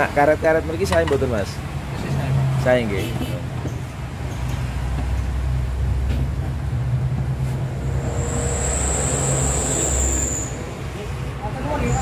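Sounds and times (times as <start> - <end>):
low mechanical hum: 6.2 - 11.3
high-pitched whine: 6.8 - 12.0.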